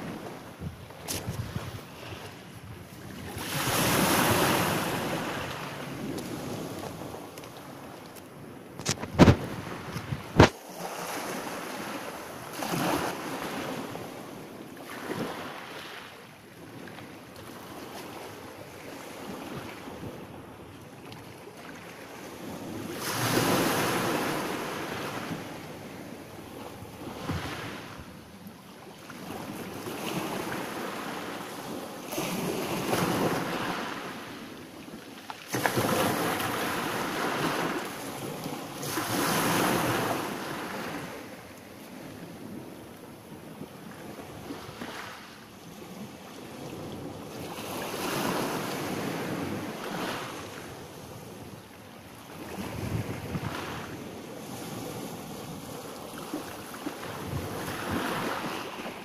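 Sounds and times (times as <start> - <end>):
waves breaking on pebbles: 8.8 - 12.0.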